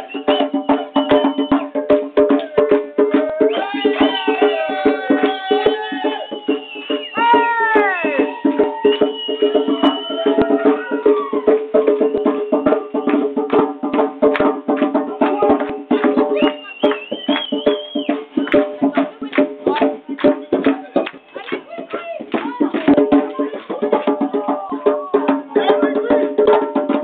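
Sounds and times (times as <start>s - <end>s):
djembe played by hand: 0.0s - 27.0s
falling wail: 7.2s - 11.6s.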